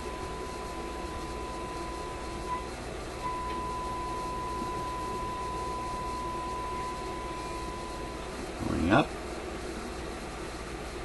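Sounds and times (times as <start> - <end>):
steady high test tone: 0.0 - 8.3
radio hiss: 7.0 - 9.2.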